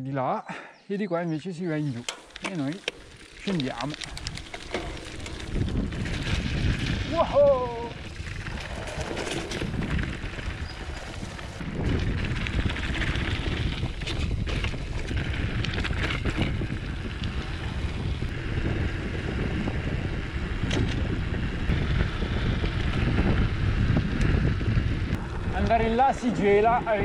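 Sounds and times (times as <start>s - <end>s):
bike knocks and rattles: 2.0s - 18.3s, 20.5s - 23.5s
wind on microphone: 3.1s - 27.0s.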